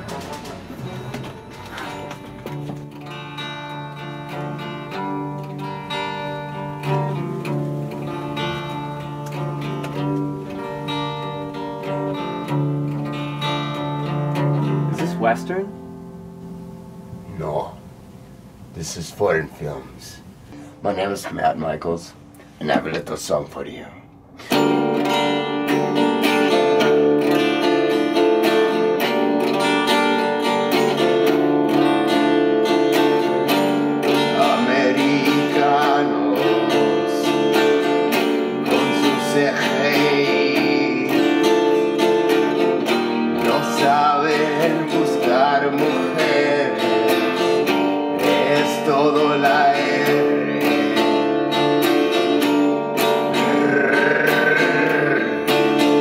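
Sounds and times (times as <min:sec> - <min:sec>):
strummed guitar chords: 0:00.0 - 0:18.0, 0:24.1 - 0:56.0
man singing: 0:34.1 - 0:42.8, 0:43.4 - 0:51.3, 0:53.3 - 0:56.0.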